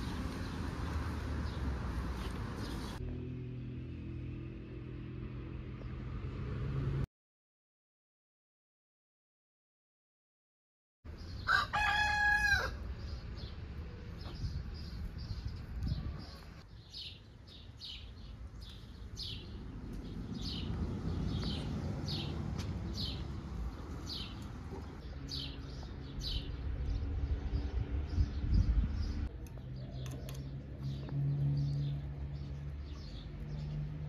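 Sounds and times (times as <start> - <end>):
rooster crowing: 11.4 - 12.8.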